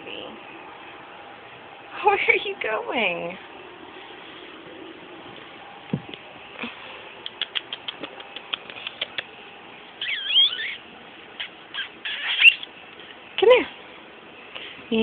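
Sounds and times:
soft low thump: 0:05.9 - 0:06.2
high kissy squeaks: 0:07.2 - 0:09.4, 0:10.0 - 0:12.8
mouth clicks: 0:07.2 - 0:09.4.

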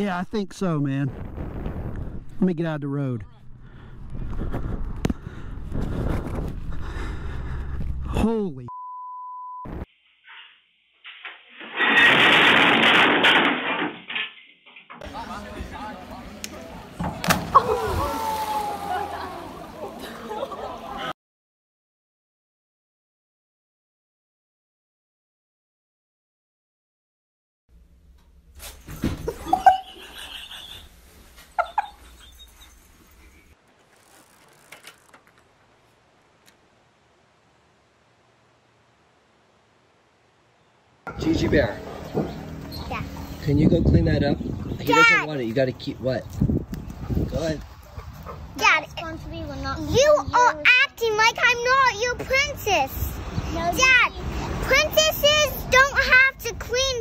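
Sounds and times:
censor bleep: 0:08.7 - 0:09.9
glass bottles crashing and breaking: 0:11.2 - 0:14.4
animal falling cries: 0:17.3 - 0:19.2
bicycle clattering against truck: 0:33.8 - 0:35.5.

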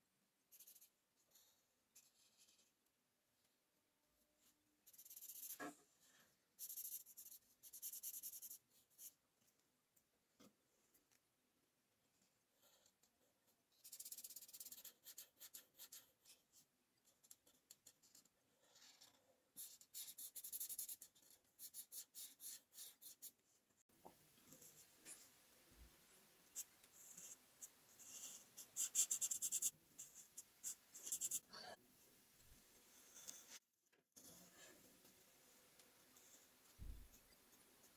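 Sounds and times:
marker scratching on paper: 0:00.5 - 0:01.0, 0:04.8 - 0:05.8, 0:06.6 - 0:09.2, 0:13.8 - 0:23.4, 0:26.5 - 0:31.4.

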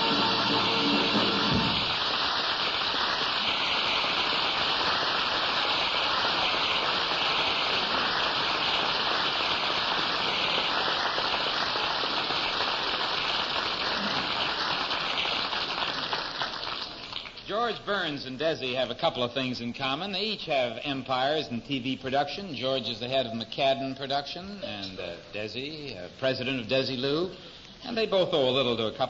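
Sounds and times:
music: 0:00.0 - 0:02.0
audience applauding: 0:00.0 - 0:17.5.

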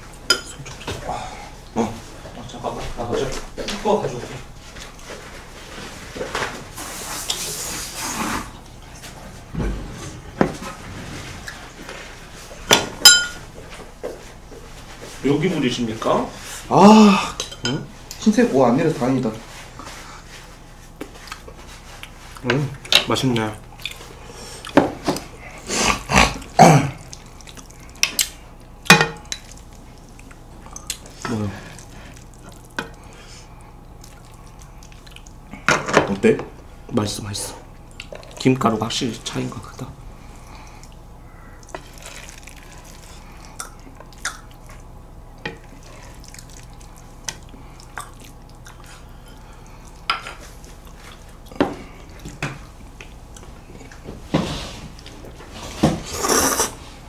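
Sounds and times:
tableware clinking: 0:13.0 - 0:13.4
wet sticky noodle sounds: 0:40.3 - 0:44.9, 0:45.6 - 0:51.5
chopsticks scraping a bowl: 0:56.0 - 0:56.8.

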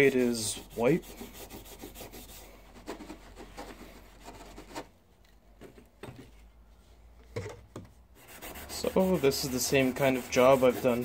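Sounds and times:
abrasive pad scrubbing metal: 0:08.2 - 0:11.0.

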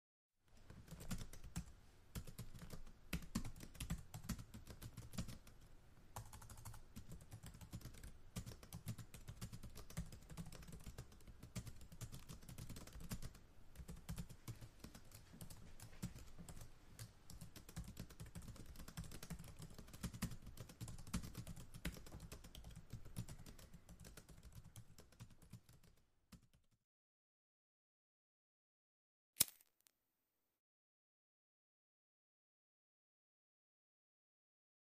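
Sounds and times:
laptop keyboard typing: 0:00.6 - 0:05.6, 0:06.2 - 0:26.7.

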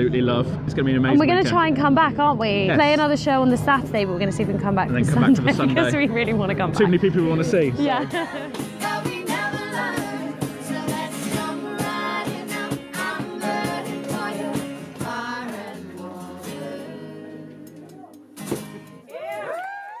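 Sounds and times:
song with singing: 0:07.8 - 0:18.3.

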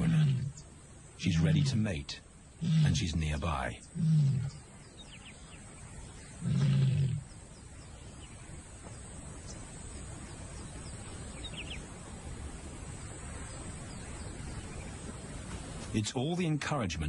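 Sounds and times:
lioness low call: 0:00.0 - 0:04.7, 0:06.3 - 0:07.3.

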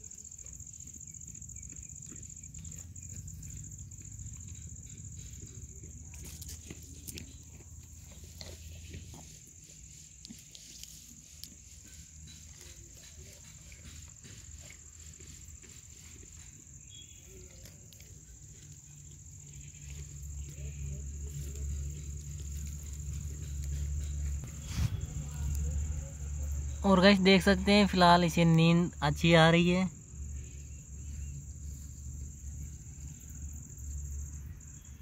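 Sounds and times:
insects chirring: 0:00.0 - 0:35.0
dry grass rustling and clicking: 0:04.6 - 0:25.7
low steady rumble: 0:19.1 - 0:35.0.

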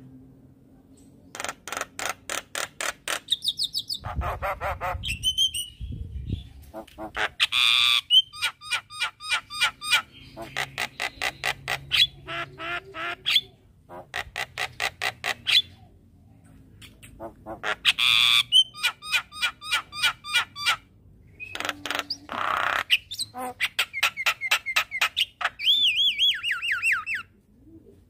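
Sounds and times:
bird harsh squawks: 0:01.3 - 0:05.7, 0:06.7 - 0:15.8, 0:17.0 - 0:20.8, 0:21.4 - 0:27.3
bird singing repeated notes: 0:03.2 - 0:04.2, 0:07.4 - 0:13.6, 0:16.8 - 0:27.3.

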